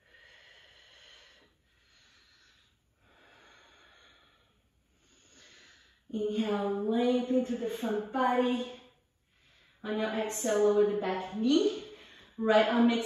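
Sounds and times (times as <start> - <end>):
faint slow breathing: 0.0 - 6.1, 8.8 - 9.8, 11.7 - 12.4.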